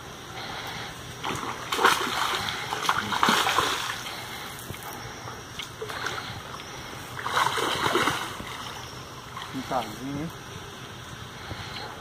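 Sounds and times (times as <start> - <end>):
fish splashing in water: 1.2 - 4.8, 5.5 - 9.7.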